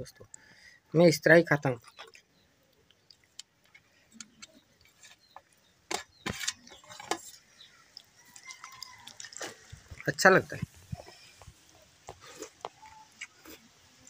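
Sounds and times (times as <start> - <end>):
fingers mixing wet rice: 6.2 - 10.1
wet smacks: 7.9 - 10.1.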